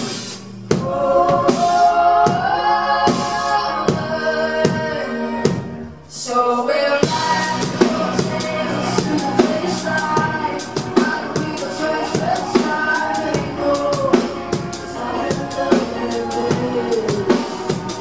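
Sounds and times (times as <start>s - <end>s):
keyboards: 0.0s - 18.0s
woman singing: 0.8s - 18.0s
drum beat: 7.0s - 18.0s.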